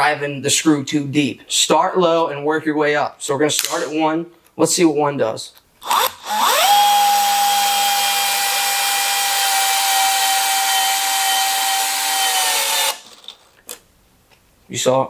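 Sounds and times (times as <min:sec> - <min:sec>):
cordless drill motor whine: 0:05.8 - 0:13.2.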